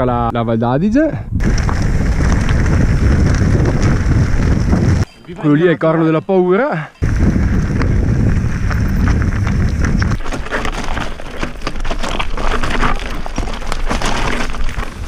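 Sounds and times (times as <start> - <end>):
deep rumble: 1.3 - 5.0, 7.0 - 10.2
tyres crunching over loose stones: 1.4 - 5.0, 7.0 - 15.0
bike rattling: 1.4 - 5.2, 7.0 - 15.0.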